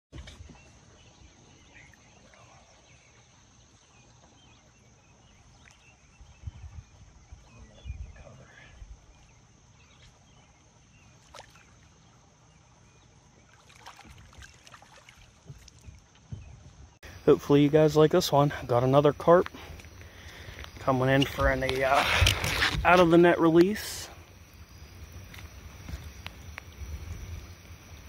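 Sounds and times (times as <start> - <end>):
water sloshing: 8.8 - 28.0
bumps against boat hull: 15.4 - 16.9.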